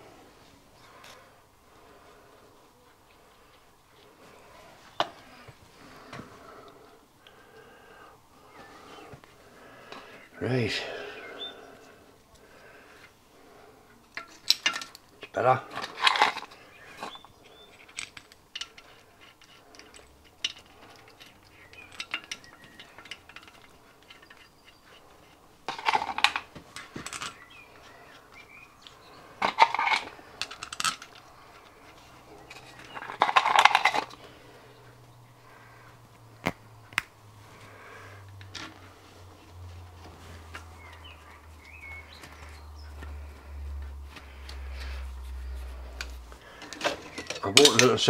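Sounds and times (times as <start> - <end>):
metal parts clattering: 14.1 - 27.5, 29.4 - 31.8, 32.4 - 34.2, 46.5 - 48.0
nuts and bolts clinking: 14.1 - 34.9, 40.5 - 48.0.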